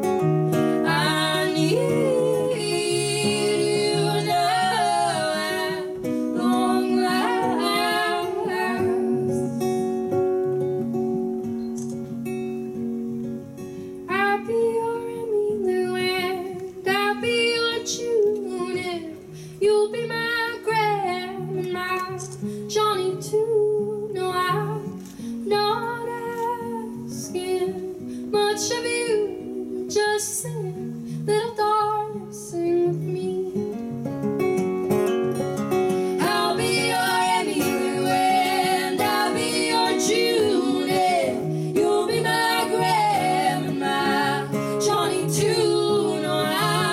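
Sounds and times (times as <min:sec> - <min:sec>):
acoustic guitar strumming: 0:00.0 - 0:15.1, 0:33.0 - 0:46.9
woman singing: 0:00.5 - 0:09.8, 0:14.1 - 0:33.8, 0:36.1 - 0:46.9
woman singing harmony: 0:00.5 - 0:09.8, 0:14.1 - 0:33.8, 0:36.0 - 0:46.9.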